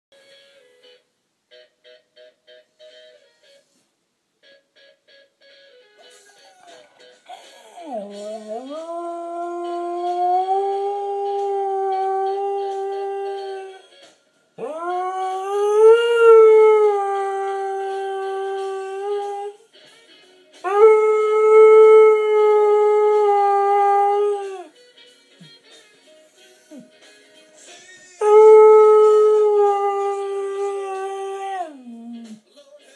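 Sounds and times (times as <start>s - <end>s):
music: 0.1s - 32.9s
dog yodeling howls: 7.8s - 13.8s, 14.6s - 19.6s, 28.2s - 32.2s.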